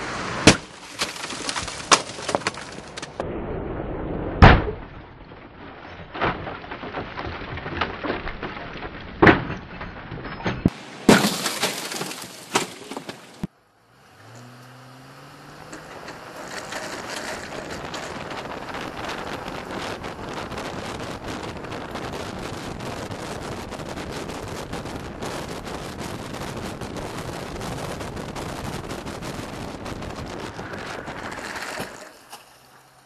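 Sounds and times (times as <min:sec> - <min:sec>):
windshield glass breaking: 0:00.4 - 0:03.2, 0:04.4 - 0:13.5
metal crash: 0:04.3 - 0:13.4
engine rising in pitch: 0:13.7 - 0:16.4
wind noise on camera: 0:15.8 - 0:32.1.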